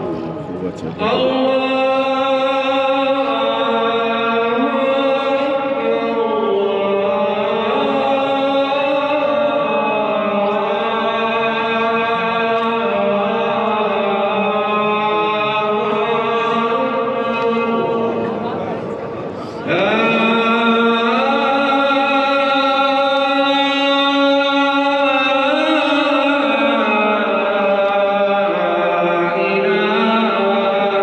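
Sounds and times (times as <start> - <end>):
person chanting slow melody: 0.0 - 31.0.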